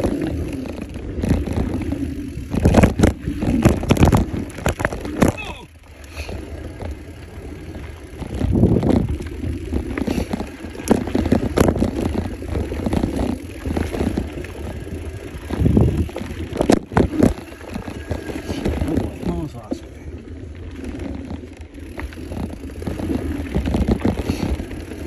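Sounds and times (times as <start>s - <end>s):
bike rattling: 0.0s - 25.0s
tyres rumbling over dirt: 0.0s - 25.0s.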